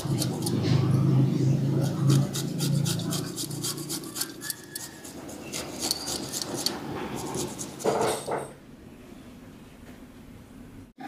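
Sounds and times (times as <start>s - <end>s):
garlic scraping on grater: 0.0s - 1.0s, 1.7s - 8.2s.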